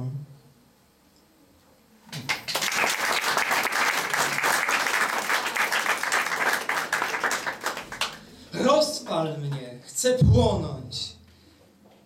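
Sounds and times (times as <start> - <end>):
audience clapping: 2.1 - 8.4.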